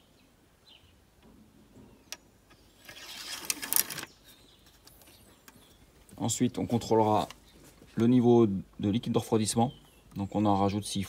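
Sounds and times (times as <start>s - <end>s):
scraping rub: 2.8s - 4.1s.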